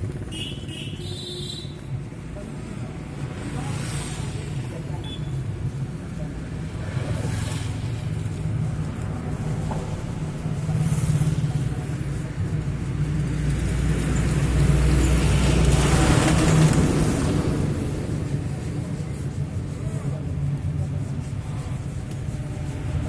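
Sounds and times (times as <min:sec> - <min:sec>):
low engine rumble: 0:00.0 - 0:23.0.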